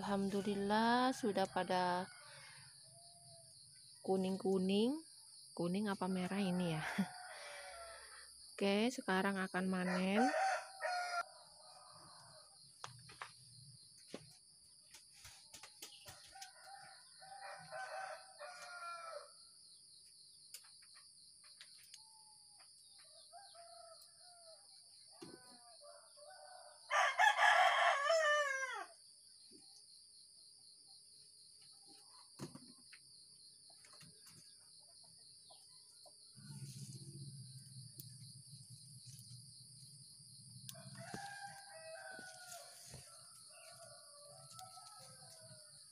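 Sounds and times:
rooster crowing: 0:06.6 - 0:08.2, 0:09.8 - 0:12.6, 0:16.2 - 0:19.4, 0:23.2 - 0:24.6, 0:25.5 - 0:29.0, 0:40.6 - 0:45.9.

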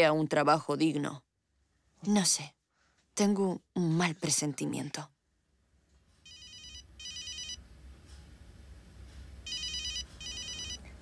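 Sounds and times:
mobile phone ringtone: 0:06.3 - 0:07.6, 0:09.5 - 0:10.8.

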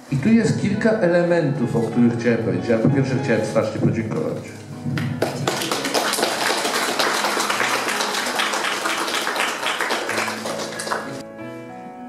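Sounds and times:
audience applauding: 0:05.0 - 0:11.2.

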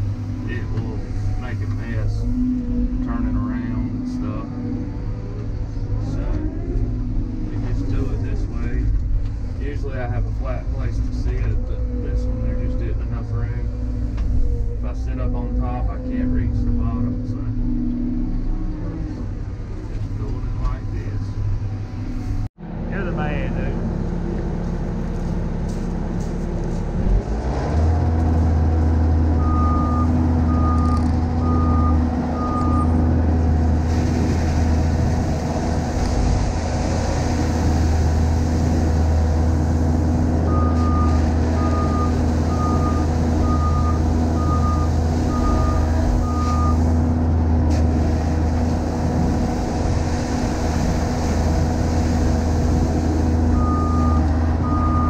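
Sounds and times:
diesel engine revving: 0:00.0 - 0:55.0
backup alarm beeping: 0:29.4 - 0:33.0, 0:40.4 - 0:46.8, 0:53.5 - 0:55.0.

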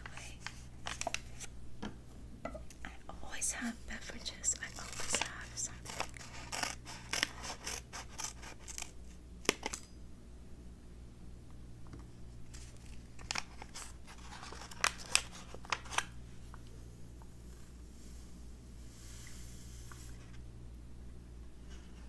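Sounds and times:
paper pouch crinkling: 0:00.4 - 0:01.5, 0:04.5 - 0:09.7, 0:12.5 - 0:16.2.

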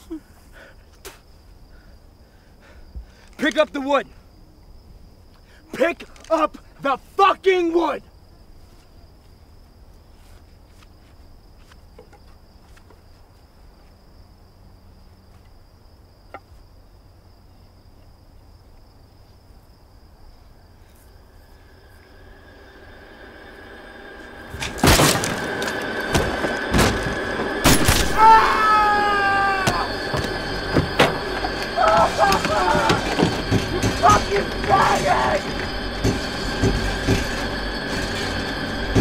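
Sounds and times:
insect chirr: 0:00.0 - 0:39.0
sustained music tone: 0:21.3 - 0:39.0
loud crashing impacts: 0:24.3 - 0:39.0.

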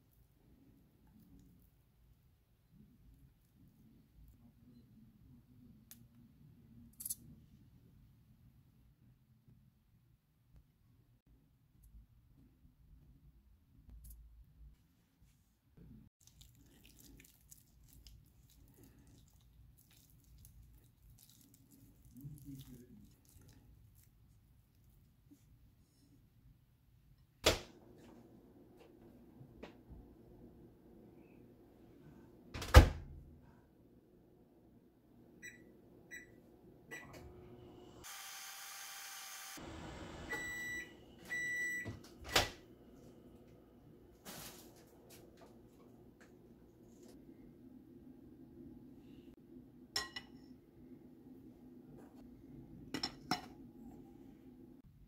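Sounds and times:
soft squishing: 0:16.2 - 0:25.8
microwave humming: 0:34.4 - 0:46.7
microwave end-of-cycle beeps: 0:35.4 - 0:37.4, 0:39.9 - 0:42.5
microwave keypad beeps: 0:40.3 - 0:41.9.

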